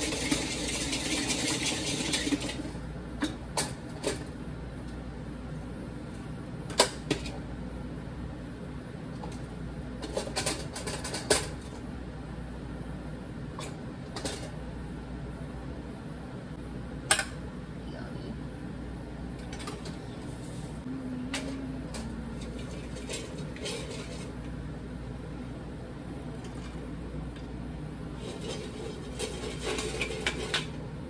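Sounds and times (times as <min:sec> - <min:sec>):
popcorn popping: 0:00.0 - 0:04.3.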